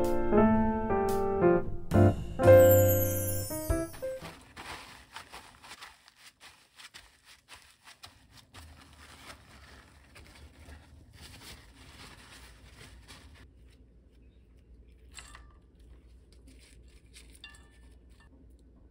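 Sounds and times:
paper towels rustling and crinkling: 3.9 - 14.2, 15.9 - 17.4.

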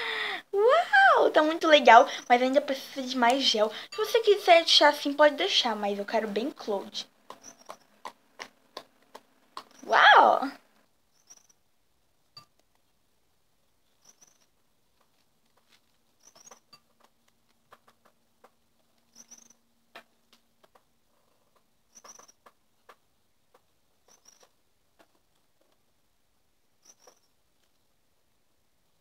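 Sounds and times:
short high squeak: 19.1 - 19.6.

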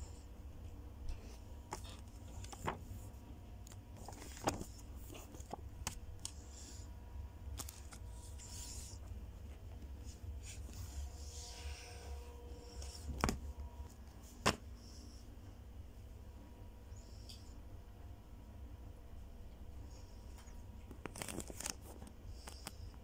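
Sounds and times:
paper leaflets rustling: 1.7 - 6.8, 7.5 - 9.0, 21.0 - 22.0.

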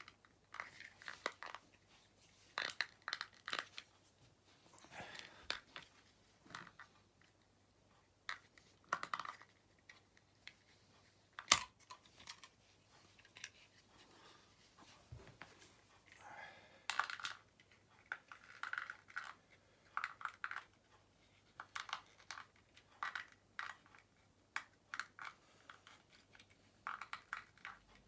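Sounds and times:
small plastic parts clicking: 11.4 - 12.5, 16.9 - 20.8, 21.5 - 28.0.

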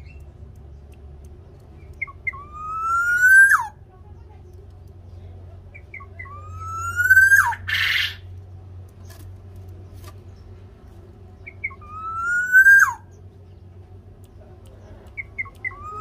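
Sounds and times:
steady low hum: 0.0 - 16.0
bird whistling call: 2.0 - 3.7, 5.8 - 8.2, 11.4 - 13.2, 15.2 - 16.0.

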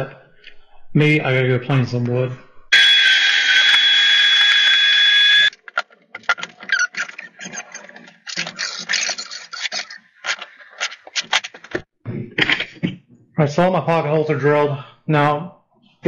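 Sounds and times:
thickness planer whining: 2.8 - 5.5.

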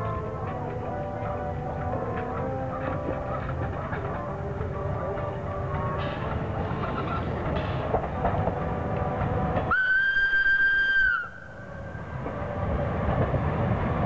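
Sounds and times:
steam locomotive rolling past: 0.0 - 14.0
steam whistle blast: 9.7 - 11.8.

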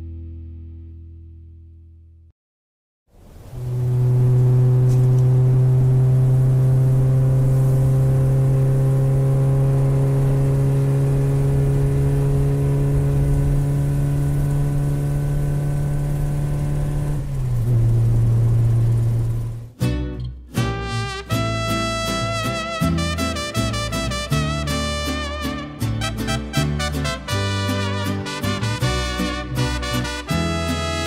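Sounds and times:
low sustained drone note: 3.5 - 19.5.

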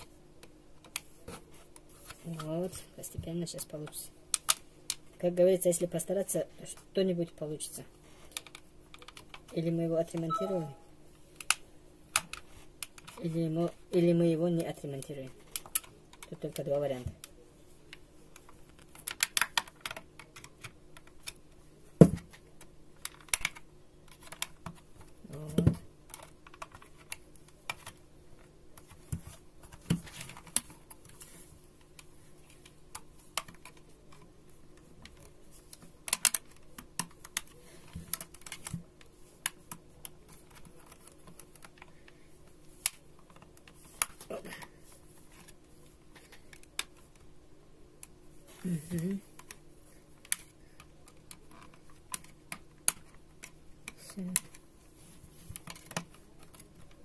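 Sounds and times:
faint low hum: 0.0 - 57.0.

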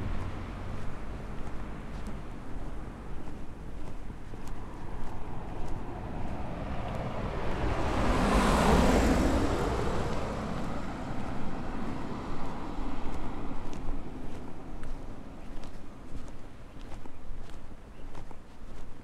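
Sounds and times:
pickup truck driving past: 4.6 - 14.9.

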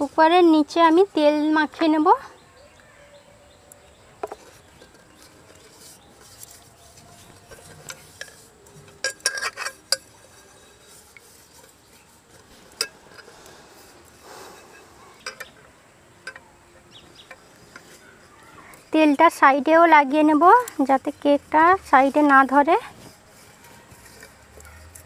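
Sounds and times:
metal pot knocks and clinks: 7.4 - 10.8.

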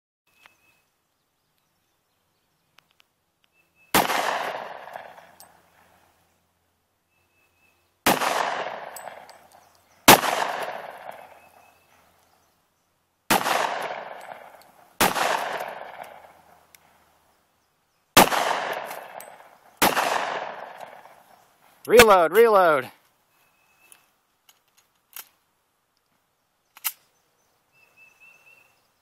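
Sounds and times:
pistol shots with echo: 3.9 - 5.6, 8.0 - 9.5, 10.1 - 11.5, 13.3 - 16.5, 18.2 - 21.2.

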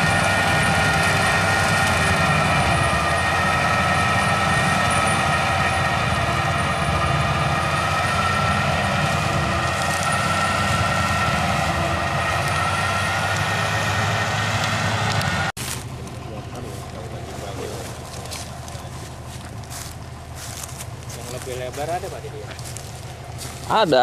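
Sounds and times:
tractor engine droning: 0.0 - 24.0.

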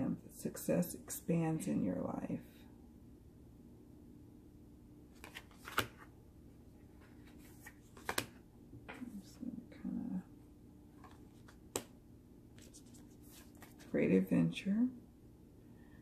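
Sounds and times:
cards tapping and sliding: 5.2 - 6.1, 7.0 - 9.0, 11.0 - 12.0, 12.6 - 13.9.

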